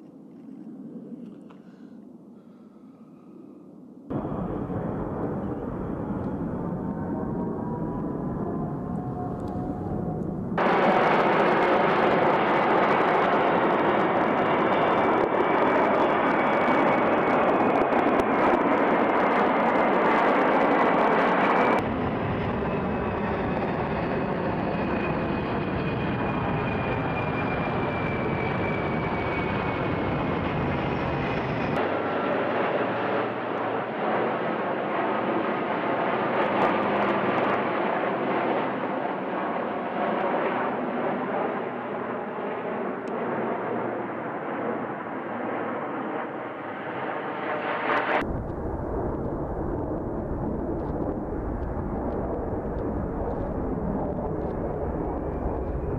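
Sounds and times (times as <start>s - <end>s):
jet aircraft roar with whine: 0.0s - 55.9s
turboprop aircraft drone: 0.0s - 55.9s
deep jet roar: 4.1s - 14.4s, 48.2s - 55.9s.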